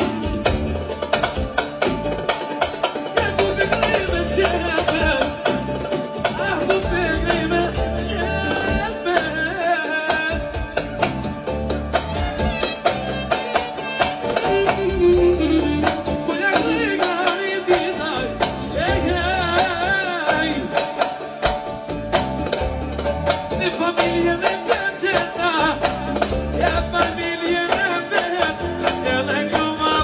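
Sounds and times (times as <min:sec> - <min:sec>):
drum kit beat: 0:00.0 - 0:30.0
electronic keyboard: 0:00.0 - 0:30.0
man singing into a microphone: 0:03.1 - 0:11.1, 0:15.0 - 0:21.4, 0:23.5 - 0:30.0.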